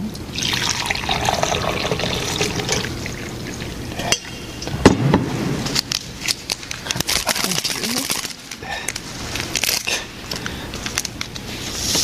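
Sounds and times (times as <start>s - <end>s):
water pouring into mug: 0.4s - 3.8s.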